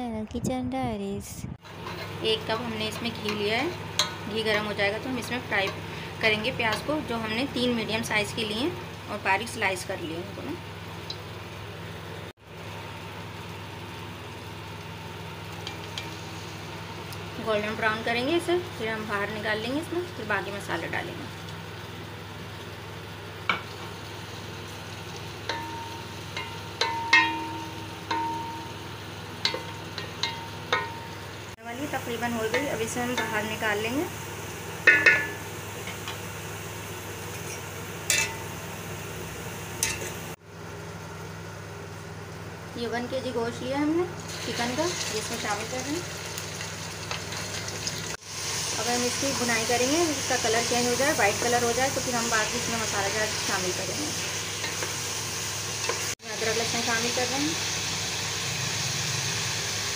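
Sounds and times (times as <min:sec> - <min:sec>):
low mechanical hum: 0:00.0 - 0:59.9
metal skimmer clinking on pot: 0:25.4 - 0:28.8, 0:29.4 - 0:31.2, 0:34.8 - 0:35.4
even hiss: 0:48.0 - 0:59.9.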